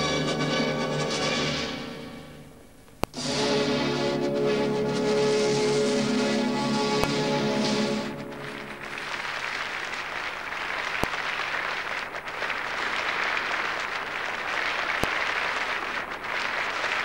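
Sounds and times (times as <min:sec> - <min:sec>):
audience applauding: 0:06.9 - 0:17.0.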